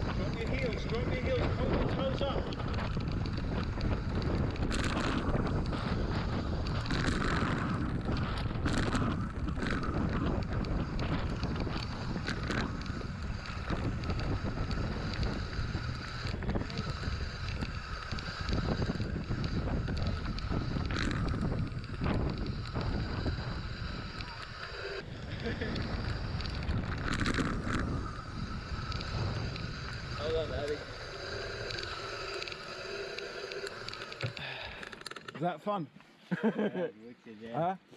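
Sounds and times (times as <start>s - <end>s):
bike clicks and knocks: 0.0s - 30.0s
wind buffeting microphone: 0.0s - 35.0s
bike tyres rumbling on gravel: 0.0s - 35.5s.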